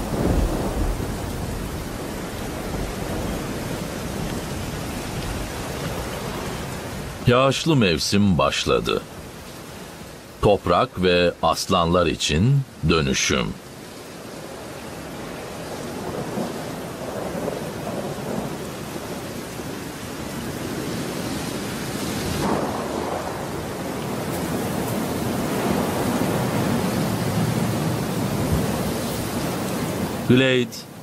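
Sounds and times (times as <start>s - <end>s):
thunder rumbles: 0.0s - 7.3s, 15.8s - 21.2s, 22.2s - 30.3s
steady rain: 0.0s - 31.0s.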